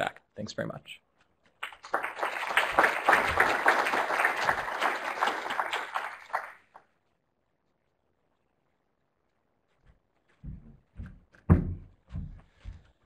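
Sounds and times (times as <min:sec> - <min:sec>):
audience applauding: 0:01.6 - 0:07.0.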